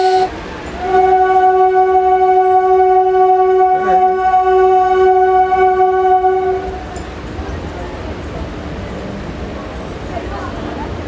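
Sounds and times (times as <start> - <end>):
train horn blast: 0.0 - 6.9.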